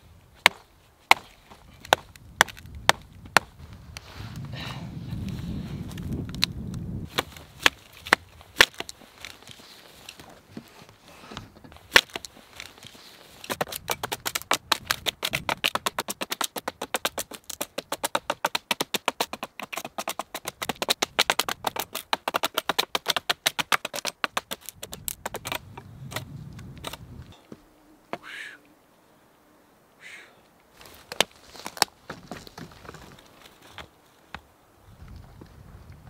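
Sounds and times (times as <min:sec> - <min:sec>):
sharp wooden knocks: 0:00.4 - 0:03.5, 0:07.1 - 0:08.9, 0:11.9 - 0:12.3, 0:13.5 - 0:27.0
wood crackling and snapping: 0:00.4 - 0:04.5, 0:05.2 - 0:27.5, 0:30.7 - 0:34.4.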